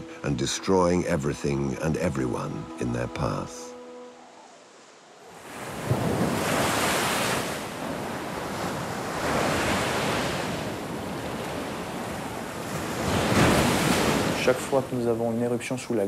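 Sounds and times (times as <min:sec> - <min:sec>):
sea surf breaking on beach: 0:05.2 - 0:15.4.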